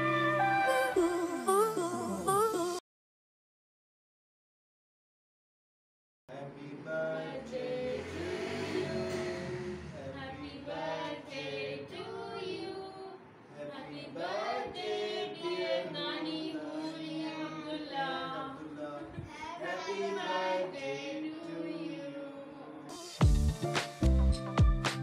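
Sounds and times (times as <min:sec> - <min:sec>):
group of voices singing together: 0:06.3 - 0:22.7.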